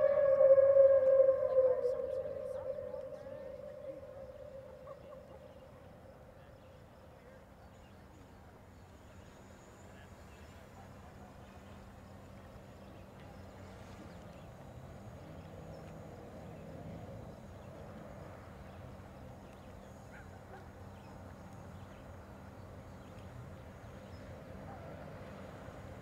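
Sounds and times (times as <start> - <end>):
chirps: 0.0 - 5.9
low steady hum: 0.0 - 7.0.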